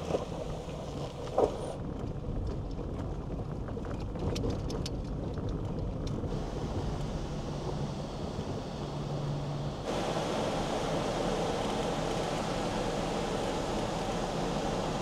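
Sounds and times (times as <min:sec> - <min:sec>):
road noise on gravel: 0:00.0 - 0:15.0
low engine drone: 0:06.2 - 0:15.0.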